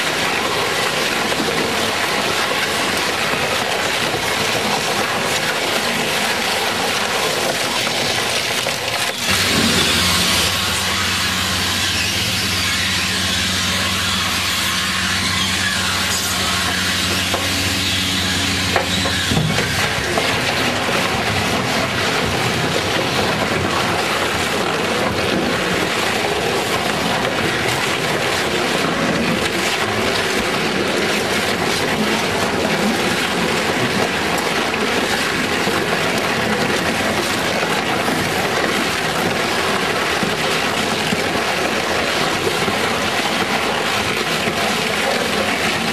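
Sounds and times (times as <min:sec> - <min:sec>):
shredder crunching and grinding tyre: 0:00.0 - 0:45.9
low drive hum: 0:09.2 - 0:23.8.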